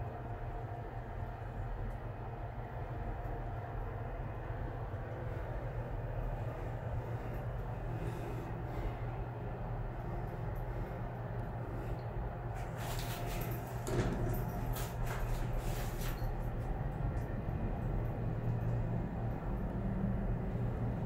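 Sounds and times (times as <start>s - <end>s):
elevator hum: 0.0s - 21.0s
light clicks and rattles: 12.8s - 19.7s.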